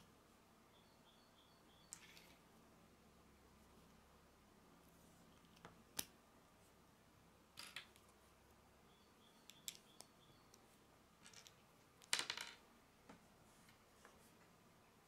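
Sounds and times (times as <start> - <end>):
plastic bricks clicking together: 11.2 - 12.6.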